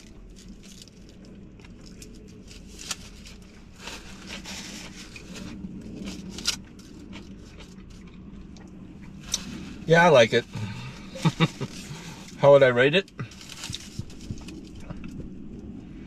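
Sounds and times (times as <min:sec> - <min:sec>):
wrapper crinkling and rustling: 0:00.0 - 0:08.0, 0:13.1 - 0:15.2.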